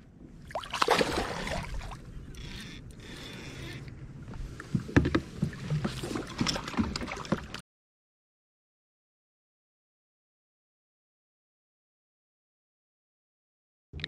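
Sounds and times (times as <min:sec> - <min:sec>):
fish splashing at the surface: 0:00.5 - 0:02.0.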